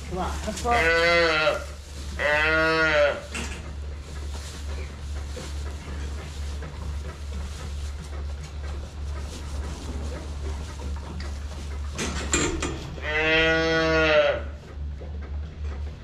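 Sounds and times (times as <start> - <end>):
calves rustling and scuffling: 0.0 - 16.0
steady low hum: 0.0 - 16.0.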